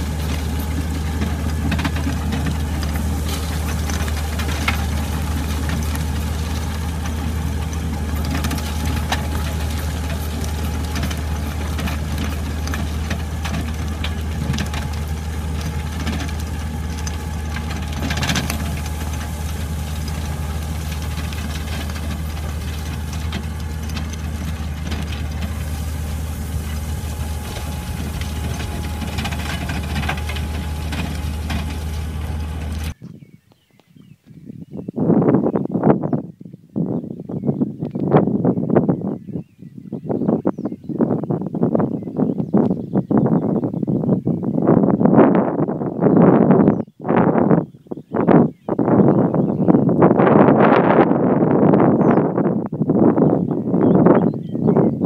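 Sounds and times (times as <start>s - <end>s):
machine engine running: 0.0s - 33.0s.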